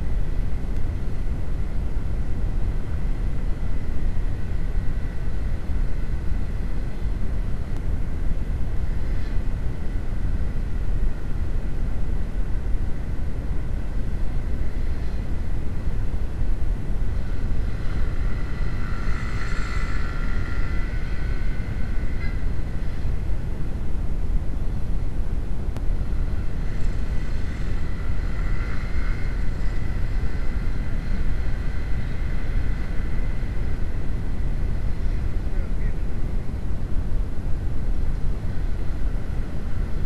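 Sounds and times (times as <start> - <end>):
wind rumble on microphone: 0.0 - 40.0
motorcycle engine: 17.1 - 23.3
scooter engine passing: 17.1 - 23.3, 26.1 - 35.7.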